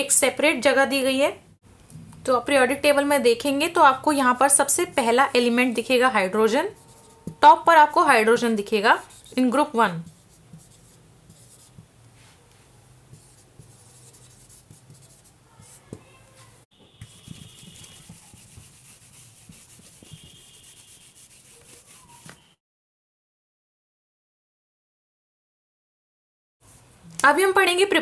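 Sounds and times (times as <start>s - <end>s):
handwriting scratching on paper: 6.8s - 7.4s, 10.1s - 11.8s, 13.1s - 16.0s, 17.0s - 22.4s.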